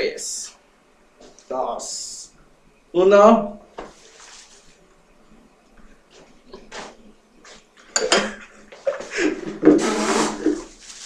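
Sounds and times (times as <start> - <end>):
dishes clattering: 7.8 - 10.7.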